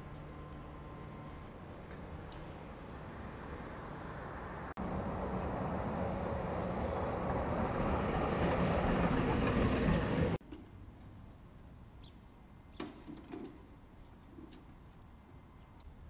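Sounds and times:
passing vehicle engine rumble: 0.0 - 10.4
road noise: 0.0 - 16.0.

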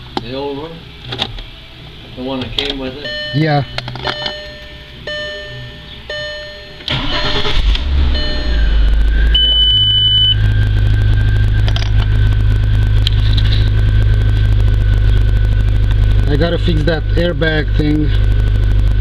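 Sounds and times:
car engine idling: 0.0 - 19.0
dashboard warning chime: 2.9 - 10.6
high beep: 3.0 - 11.6
starter motor cranking: 6.9 - 8.0.

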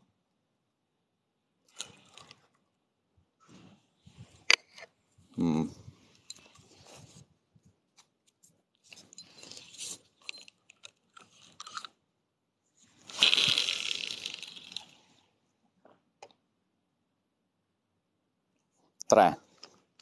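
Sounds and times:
fishing reel rustles and clicks: 1.7 - 2.5, 8.9 - 12.0, 12.9 - 15.2.

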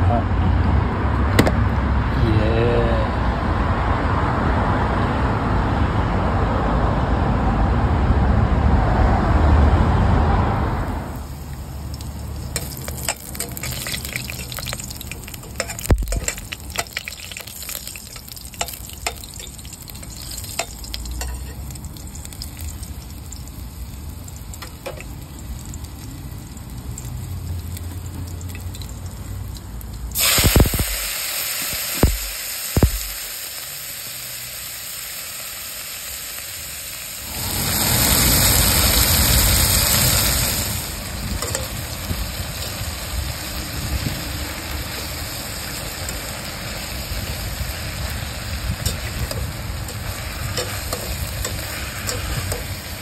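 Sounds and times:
meat sizzling in a pan: 10.9 - 53.0
loud steady rushing noise: 37.2 - 42.2.

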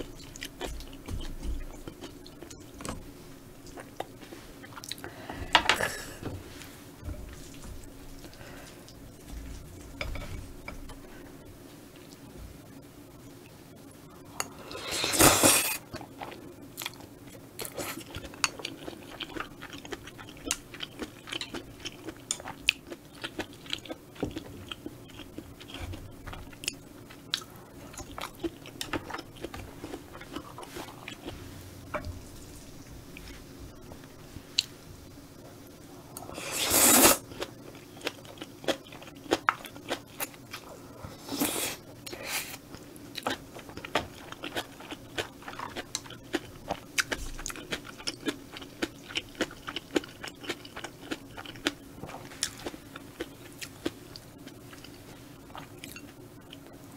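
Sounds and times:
chewing with wet clicks: 15.9 - 31.3, 37.4 - 40.7, 42.7 - 56.7
loud noodle slurps: 36.5 - 37.2.

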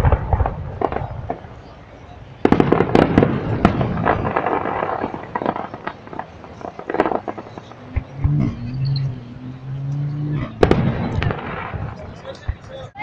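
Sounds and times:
fireworks shells bursting crackling: 2.4 - 13.0.

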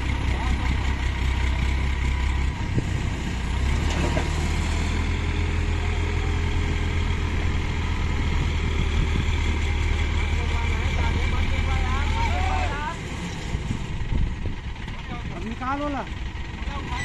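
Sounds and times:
crane diesel engine running: 0.0 - 17.0.

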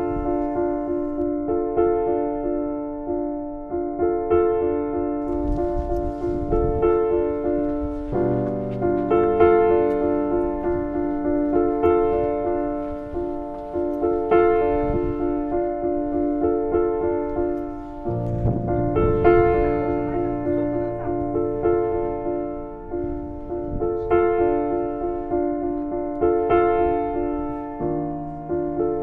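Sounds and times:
piano chords: 0.0 - 29.0.

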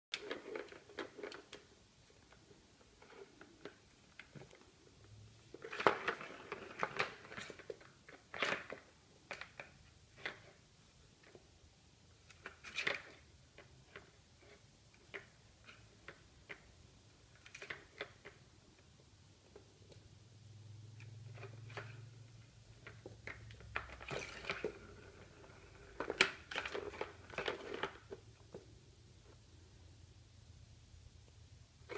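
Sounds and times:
plastic ball toy rattling: 21.0 - 28.6.

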